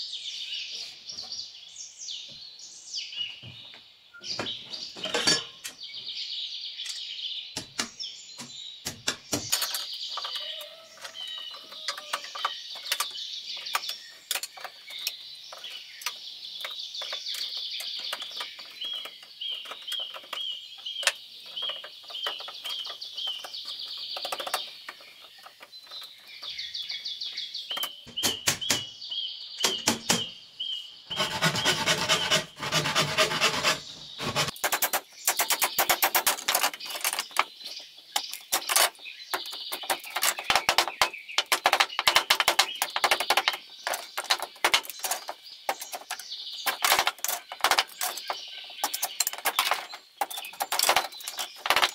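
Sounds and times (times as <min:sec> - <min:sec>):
small birds chirping: 0:00.0 - 0:51.9
knocking and scraping on wood: 0:03.4 - 0:05.8, 0:07.6 - 0:15.8, 0:27.7 - 0:28.9, 0:31.1 - 0:51.9.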